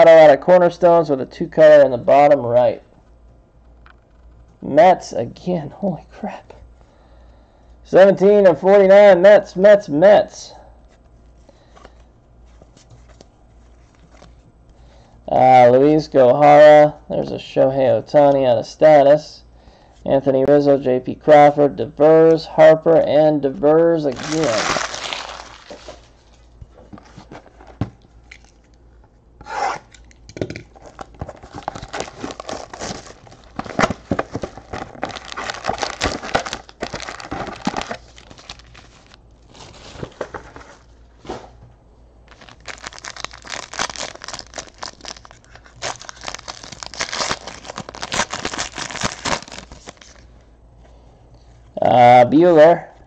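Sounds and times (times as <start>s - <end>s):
wrappers tearing and crinkling: 24.1s - 26.3s, 30.8s - 40.8s, 42.3s - 50.3s.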